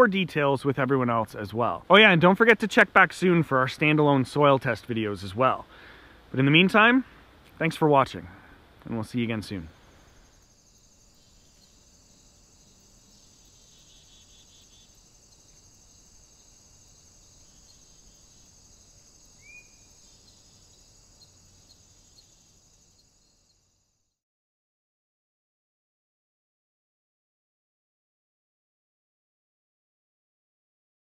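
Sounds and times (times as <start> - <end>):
bird chirp: 9.5 - 23.8
insects chirring: 9.5 - 24.2.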